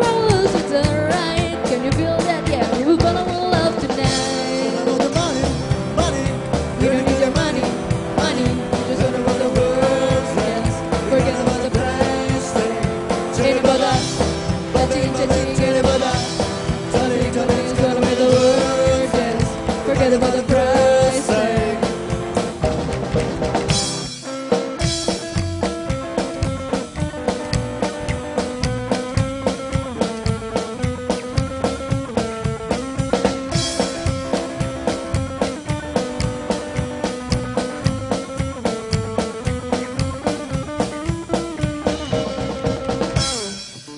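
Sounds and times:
woman singing: 0.0s - 5.2s, 6.8s - 21.9s
drum kit: 0.0s - 43.9s
electric guitar: 0.0s - 43.9s
upright bass: 0.0s - 43.9s.

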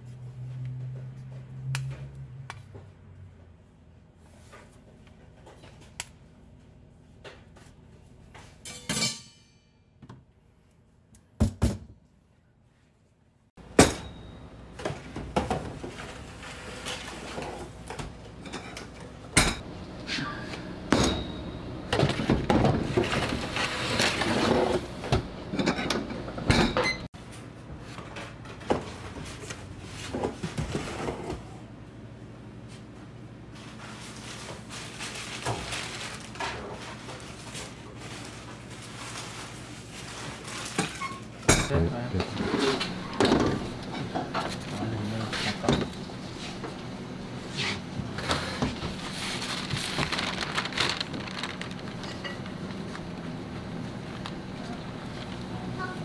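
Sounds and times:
metal trays and utensils clinking: 8.6s - 9.8s
steady low hum: 17.8s - 24.1s.

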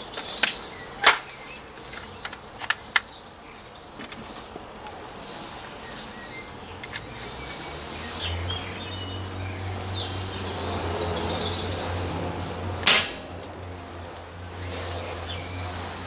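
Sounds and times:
birds chirping and whistling: 0.0s - 4.6s, 5.2s - 13.3s, 14.4s - 16.0s
sharp click: 12.8s - 13.5s.

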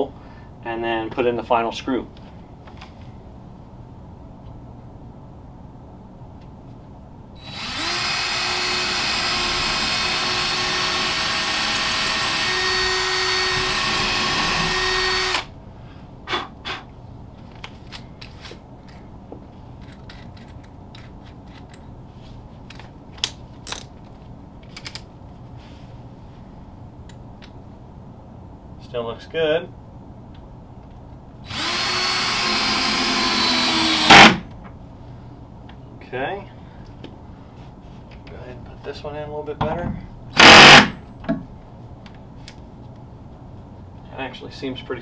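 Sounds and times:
cordless drill whining: 7.4s - 15.5s, 31.5s - 34.4s, 40.4s - 40.9s.

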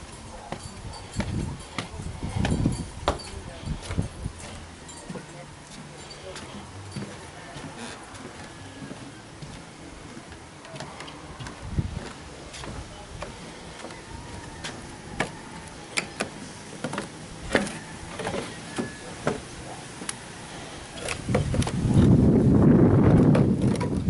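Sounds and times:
wind buffeting microphone: 0.0s - 4.8s, 11.2s - 15.7s, 20.6s - 24.0s.

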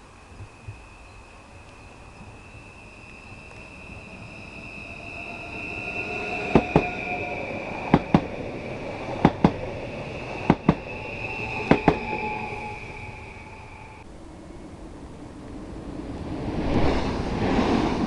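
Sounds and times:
train high whine: 0.0s - 18.0s
train wheels clacking over rail joint: 6.5s - 7.0s, 10.5s - 10.9s, 11.7s - 12.2s.

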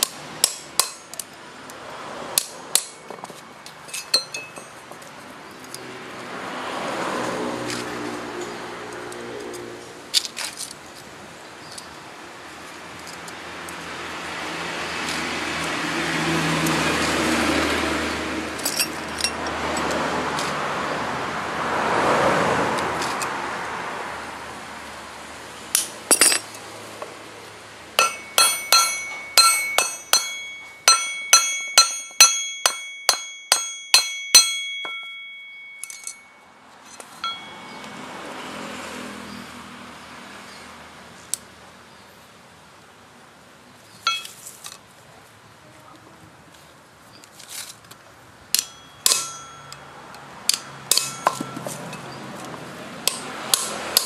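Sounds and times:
metal tapping on metal ringing: 2.4s - 5.0s, 25.8s - 26.6s, 28.0s - 38.0s, 44.1s - 44.4s, 48.5s - 52.1s.

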